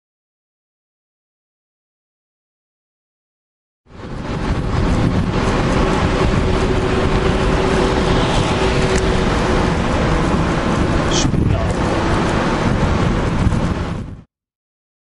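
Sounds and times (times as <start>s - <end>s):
car traffic passing: 3.9s - 14.2s
road noise: 3.9s - 14.3s
wind rush on microphone: 3.9s - 14.3s.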